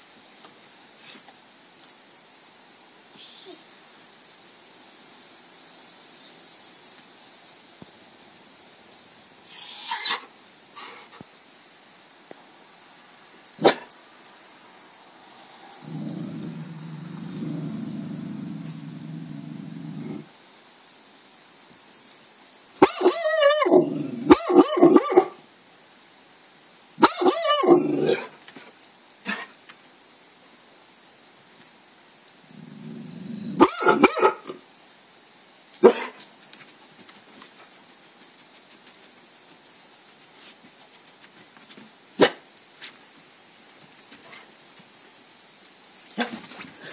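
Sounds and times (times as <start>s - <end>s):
dog yipping: 3.2s - 3.6s, 9.5s - 10.3s, 22.8s - 25.4s, 27.0s - 28.2s, 33.6s - 34.5s
dog barking: 13.6s - 13.9s, 24.3s - 25.4s, 27.0s - 28.3s, 33.6s - 34.5s, 35.8s - 36.2s.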